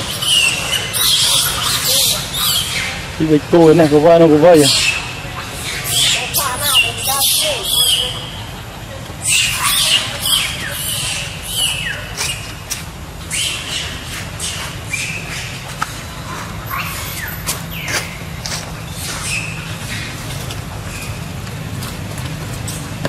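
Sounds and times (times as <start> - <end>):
macaques screaming and squealing: 0.0 - 8.6, 9.2 - 21.2.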